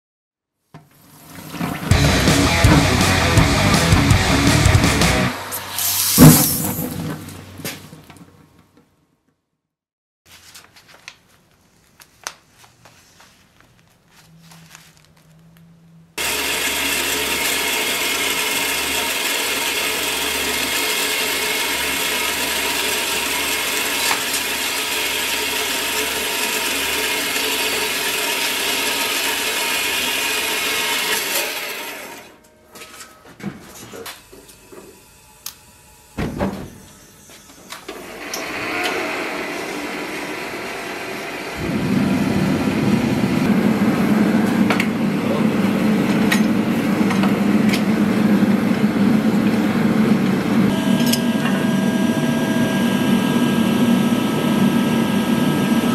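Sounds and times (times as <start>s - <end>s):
gas forge lighting burst: 1.9s - 7.2s
metal-cutting bandsaw: 16.2s - 32.4s, 36.8s - 41.8s, 50.7s - 54.0s.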